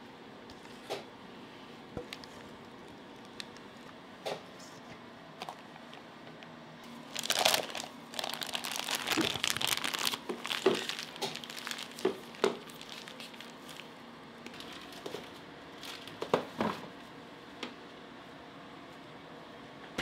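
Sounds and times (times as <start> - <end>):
plastic bag crinkling: 6.9 - 16.3.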